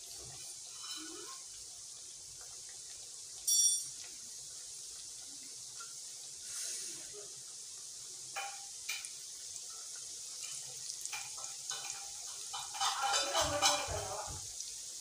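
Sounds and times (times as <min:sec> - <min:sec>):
deep-frying sizzle in oil: 0:00.0 - 0:15.0
stirring: 0:10.4 - 0:14.2.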